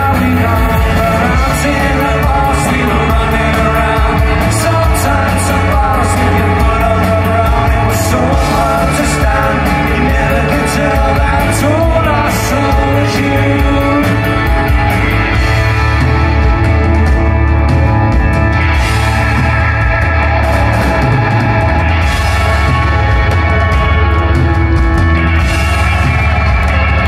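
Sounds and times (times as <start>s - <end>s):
man singing: 0.0s - 15.4s
live rock band playing: 0.0s - 27.0s.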